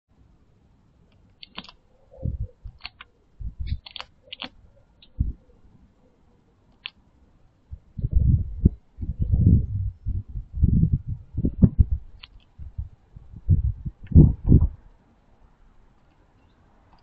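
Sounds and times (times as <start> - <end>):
beak tapping on nut: 1.4 - 1.8.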